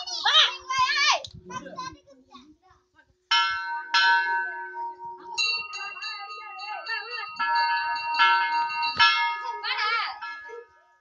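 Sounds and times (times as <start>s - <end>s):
brass bells ringing: 3.3s - 11.0s.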